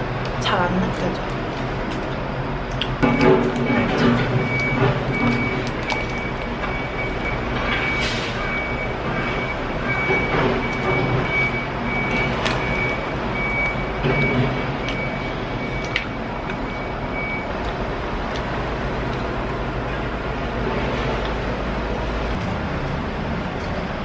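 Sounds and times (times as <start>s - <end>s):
traffic hum: 0.0s - 24.0s
reversing alarm beeping: 3.0s - 17.5s.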